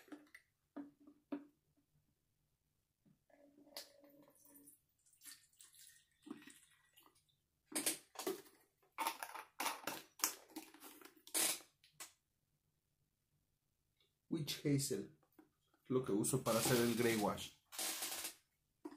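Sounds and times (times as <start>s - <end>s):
liquid trickling into bottle: 3.6s - 7.2s
plastic bottles rustling: 16.4s - 18.9s.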